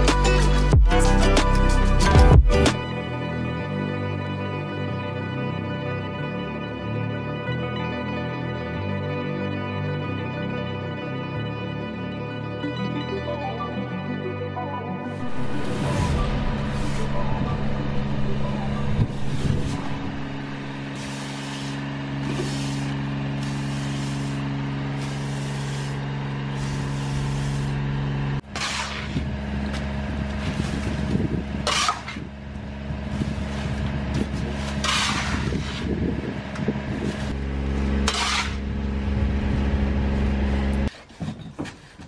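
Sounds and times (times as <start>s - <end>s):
steady engine drone: 0.0s - 40.9s
metal shovel scraping paving: 15.2s - 27.8s, 28.4s - 32.4s, 33.0s - 42.0s
push broom sweeping wet paving: 20.8s - 32.3s, 32.9s - 42.0s.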